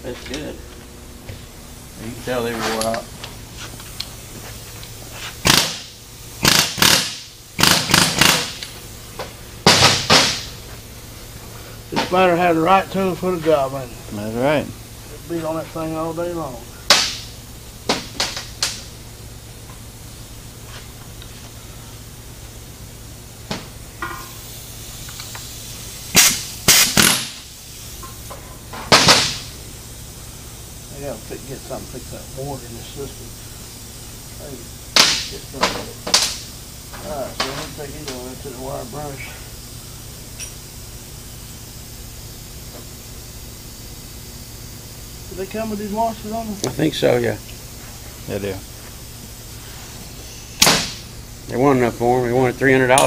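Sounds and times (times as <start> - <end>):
compressed air blow gun blasts: 3.6 - 11.9, 16.8 - 19.0, 23.4 - 30.9, 33.4 - 35.4, 49.0 - 51.5
air tool bursts on metal: 5.1 - 11.3, 16.5 - 20.3, 20.9 - 47.8, 49.0 - 51.5.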